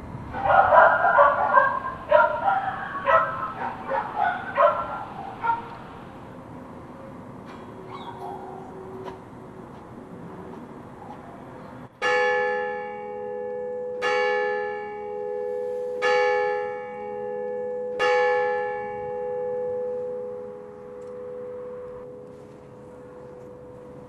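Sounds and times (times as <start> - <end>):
church bell striking: 0.5 - 5.6, 12.0 - 24.0.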